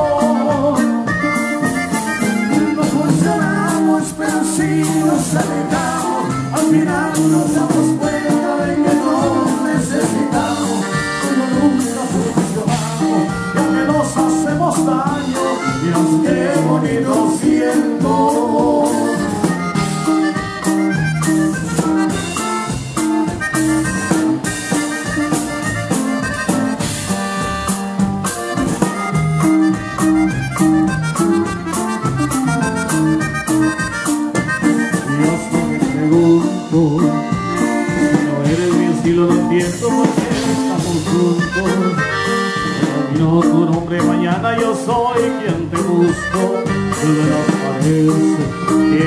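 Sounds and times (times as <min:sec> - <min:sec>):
person singing: 0:00.0 - 0:20.8, 0:34.7 - 0:49.0
accordion melody: 0:00.0 - 0:49.0
drum kit beat: 0:00.0 - 0:49.0.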